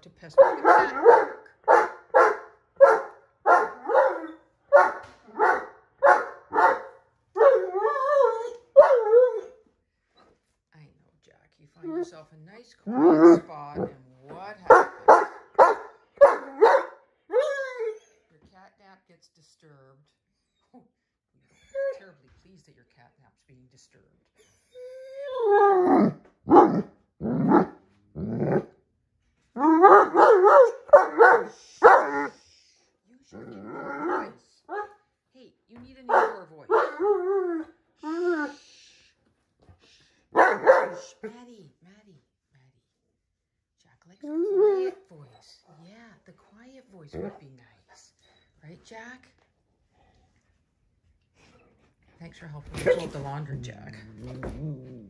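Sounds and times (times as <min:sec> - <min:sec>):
puppy barking: 0:00.3 - 0:09.5, 0:14.7 - 0:18.0, 0:25.9 - 0:27.8, 0:29.6 - 0:32.3, 0:36.1 - 0:37.6, 0:40.3 - 0:41.2
puppy whining: 0:07.4 - 0:09.6, 0:12.9 - 0:13.9, 0:17.3 - 0:18.2, 0:24.4 - 0:28.7, 0:36.2 - 0:38.6.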